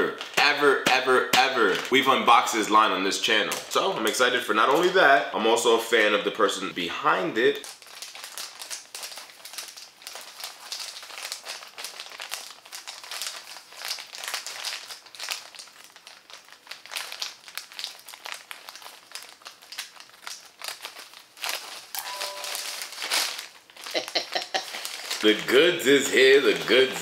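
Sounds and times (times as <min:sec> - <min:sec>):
plastic bag crinkling: 0:01.5 - 0:02.2, 0:07.6 - 0:27.0.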